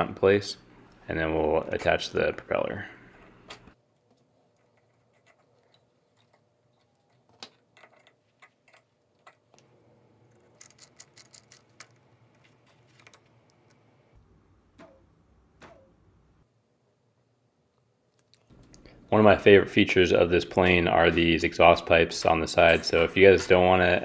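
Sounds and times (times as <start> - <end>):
small plastic parts clicking: 4.0 - 9.7, 10.3 - 13.8.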